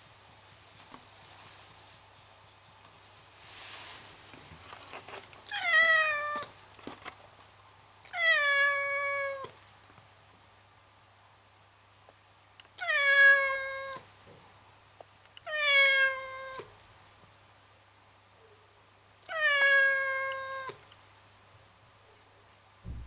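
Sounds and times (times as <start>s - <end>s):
cat meowing: 5.5s - 6.5s, 8.1s - 9.5s, 12.8s - 14.1s, 15.4s - 16.7s, 19.3s - 20.8s.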